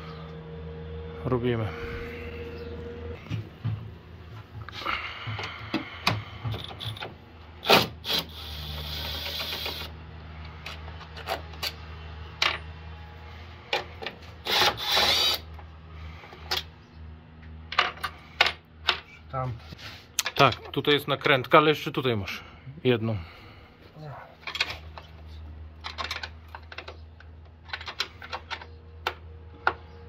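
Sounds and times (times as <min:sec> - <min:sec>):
low steady hum: 0:00.0 - 0:30.0
hand tools clicking and scraping: 0:04.7 - 0:09.8.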